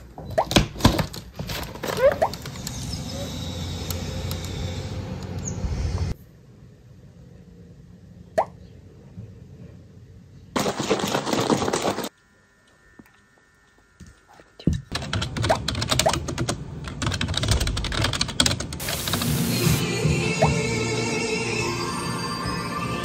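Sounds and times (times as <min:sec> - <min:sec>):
rapid keyboard typing: 0:14.9 - 0:19.2.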